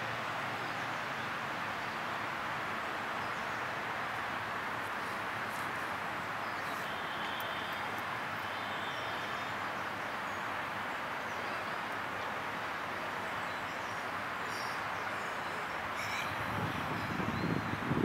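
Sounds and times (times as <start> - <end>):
rushing background noise: 0.0 - 18.0
faint high bird chirps: 14.5 - 16.4.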